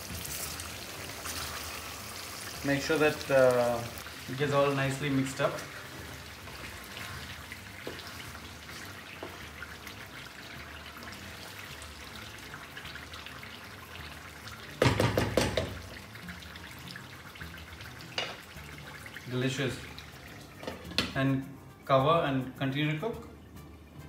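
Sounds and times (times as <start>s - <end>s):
curry sizzling in a pan: 0.0s - 21.9s
wooden spatula stirring and scraping: 3.6s - 14.2s
loud knocks and clatter: 14.8s - 15.8s.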